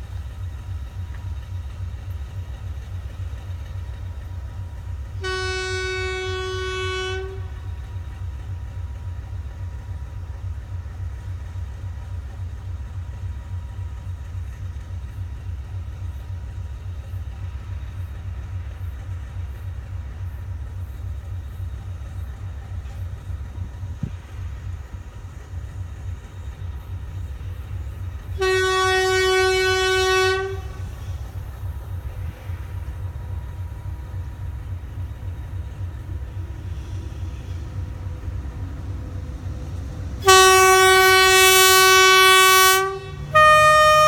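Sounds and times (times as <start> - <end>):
locomotive air horn blast: 5.2 - 7.7, 28.4 - 31.2, 40.2 - 44.0.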